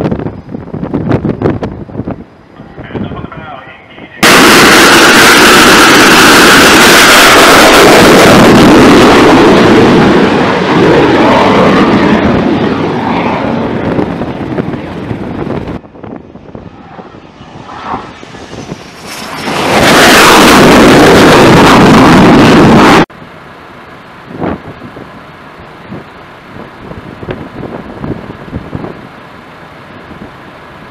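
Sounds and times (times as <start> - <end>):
jet engine roaring: 0.0 - 23.1.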